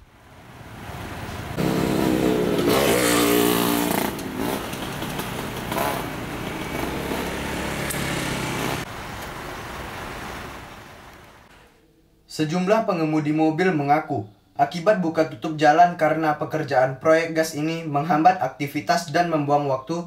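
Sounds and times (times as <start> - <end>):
road traffic noise: 0.0 - 11.7
motorcycles riding past: 0.3 - 11.0.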